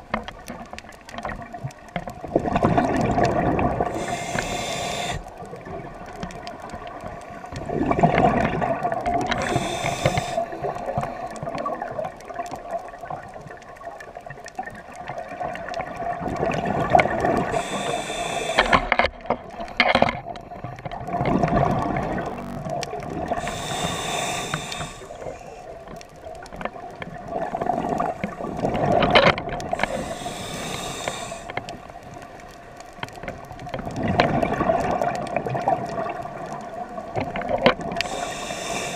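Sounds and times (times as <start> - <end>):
exhaled bubbles gushing: 1.4 - 4.4, 7.6 - 9.6, 11.4 - 17.7, 21.0 - 23.6, 26.8 - 30.0, 33.9 - 38.5
regulator hissing inhalation: 3.8 - 5.3, 9.4 - 10.7, 17.4 - 19.0, 23.3 - 25.6, 29.8 - 31.6, 38.0 - 38.9
steady hum: 3.9 - 5.2, 21.9 - 25.6.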